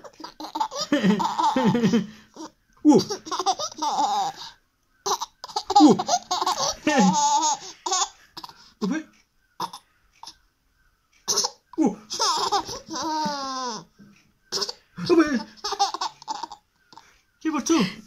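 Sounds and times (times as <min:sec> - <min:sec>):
toddler girl laughing: 0:00.0 - 0:04.5, 0:05.1 - 0:08.6, 0:11.3 - 0:13.9, 0:15.5 - 0:16.6.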